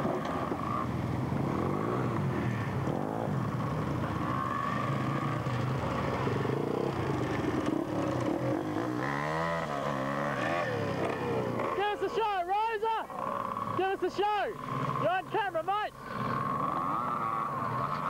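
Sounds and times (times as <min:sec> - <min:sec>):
dirt bike revving: 0:00.0 - 0:18.0
small petrol engines revving: 0:00.0 - 0:18.0.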